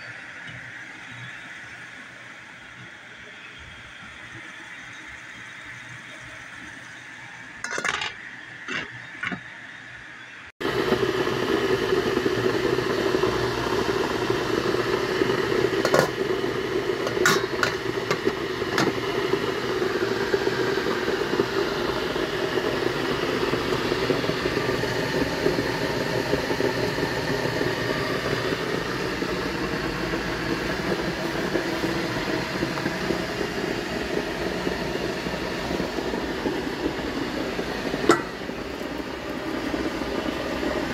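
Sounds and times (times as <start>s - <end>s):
metal cookware clinking: 7.6s - 8.8s, 17.1s - 18.9s, 38.1s - 38.4s
kitchen machinery whirring: 7.6s - 9.6s, 10.6s - 40.9s.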